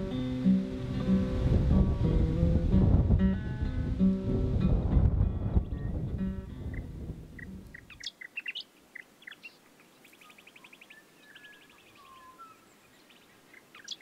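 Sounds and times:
strummed acoustic guitar: 0.0s - 7.6s
small birds chirping: 5.6s - 14.0s
bird trills: 6.7s - 14.0s.

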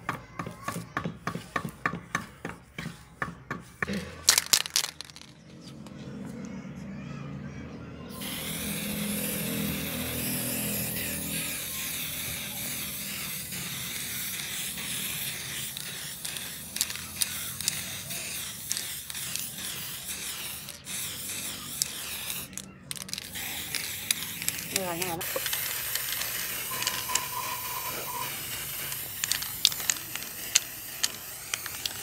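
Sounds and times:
aerosol spray can hissing: 8.2s - 32.0s.

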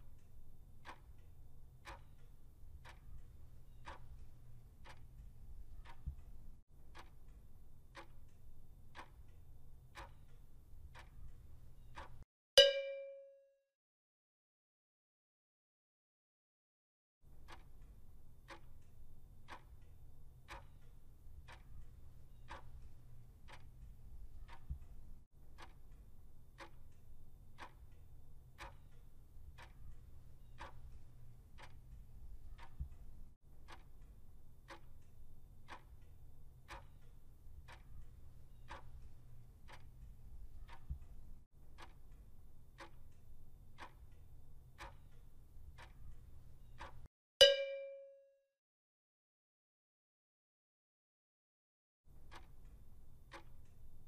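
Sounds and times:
clock ticking: 0.0s - 13.3s, 17.3s - 48.1s, 52.1s - 54.0s.

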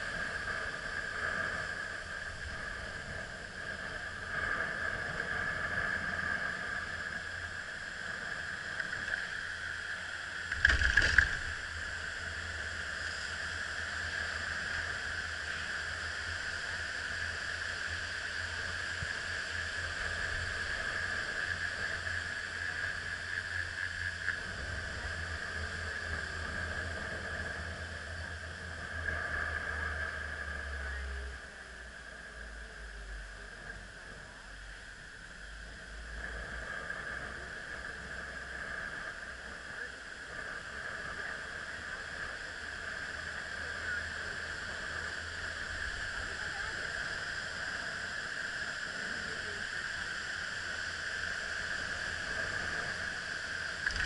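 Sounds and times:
chairlift mechanical whine: 0.0s - 54.0s
wind rumble on microphone: 0.0s - 54.0s.

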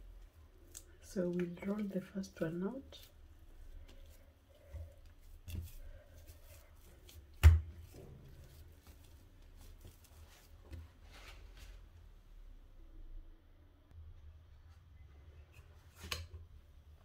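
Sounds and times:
hands kneading dough: 0.0s - 12.4s.

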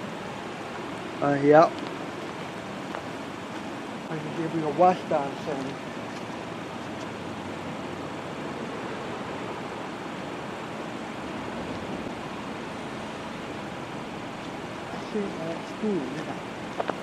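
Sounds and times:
steady rushing noise: 0.0s - 17.0s.

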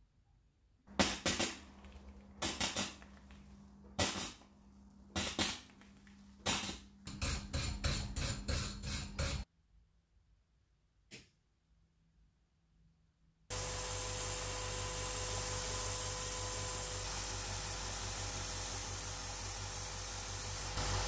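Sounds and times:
welding crackling bursts: 0.9s - 3.3s, 4.0s - 4.4s, 5.1s - 7.3s.

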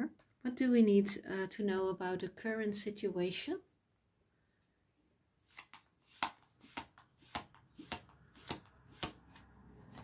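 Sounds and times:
cards shuffled by hand: 5.5s - 10.0s.

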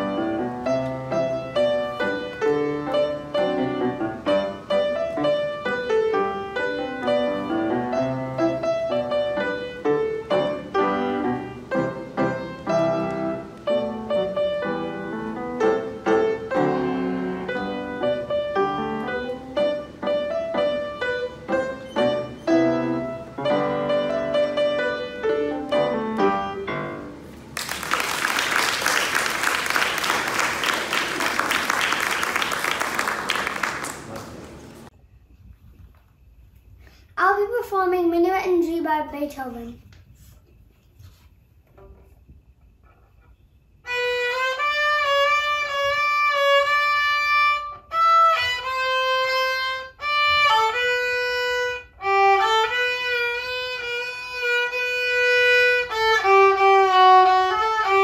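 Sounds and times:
grand piano playing: 0.0s - 27.6s
audience applause: 27.5s - 34.9s.

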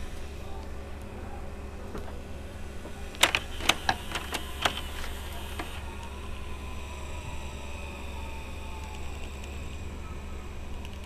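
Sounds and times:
faint motor whine: 0.0s - 11.0s
tape mechanism clicking: 3.1s - 6.1s.

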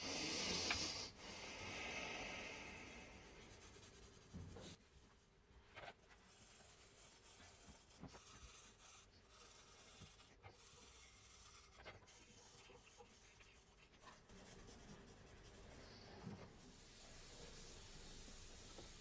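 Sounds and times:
marker scratching on steel: 5.8s - 15.9s.

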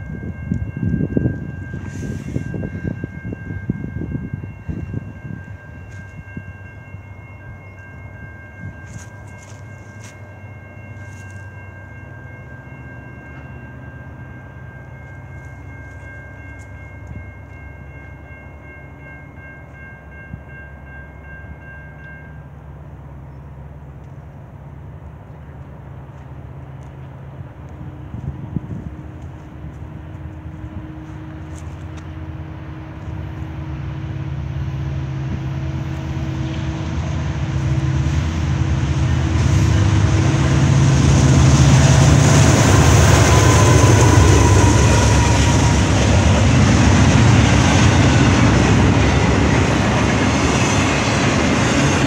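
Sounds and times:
high ringing tone: 0.0s - 23.5s
diesel locomotive engine drone: 0.0s - 52.0s.

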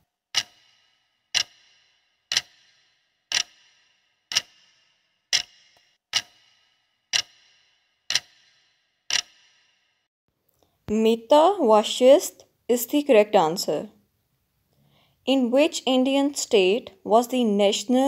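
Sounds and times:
clock ticking: 0.3s - 9.6s.

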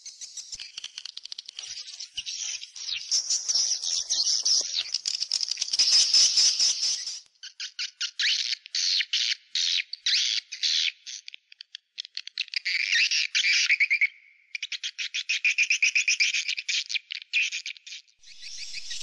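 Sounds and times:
swallows twittering: 0.0s - 7.2s, 18.2s - 19.0s.

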